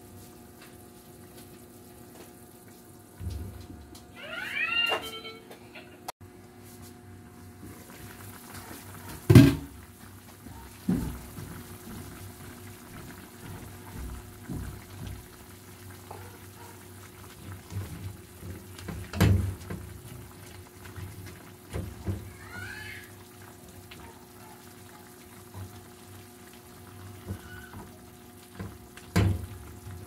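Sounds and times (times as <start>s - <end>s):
soup simmering in a pot: 7.2s - 30.0s.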